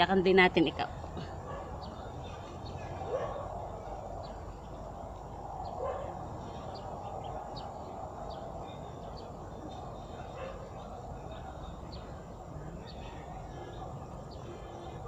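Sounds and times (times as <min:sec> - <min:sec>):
low outdoor rumble: 0:00.0 - 0:15.0
small birds chirping: 0:00.0 - 0:15.0.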